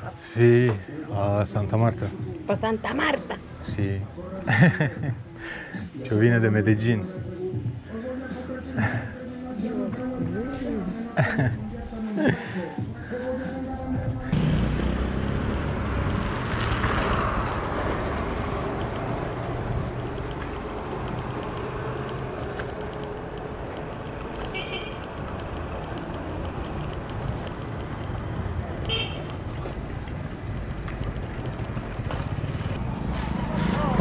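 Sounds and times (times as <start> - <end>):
bicycle tyre noise: 15.9 - 34.0.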